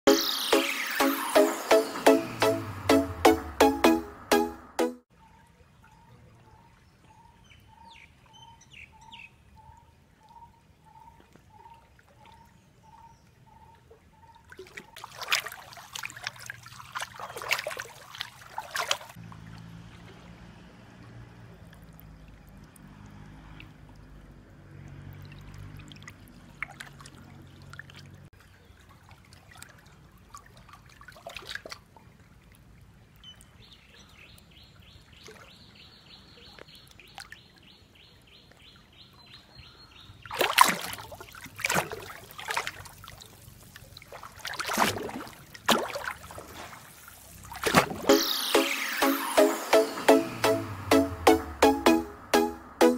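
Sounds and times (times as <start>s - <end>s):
water lapping and trickling: 5.1s - 51.2s
sudden surges of water: 40.3s - 52.4s.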